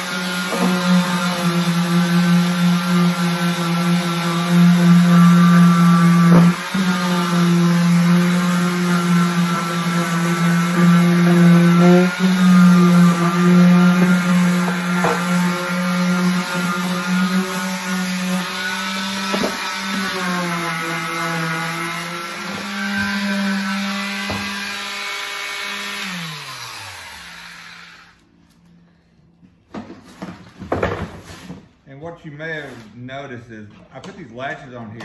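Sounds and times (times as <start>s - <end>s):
electric sander running: 0.0s - 28.2s
sander knocking on plastic: 6.0s - 6.8s, 12.8s - 15.6s, 19.2s - 19.7s.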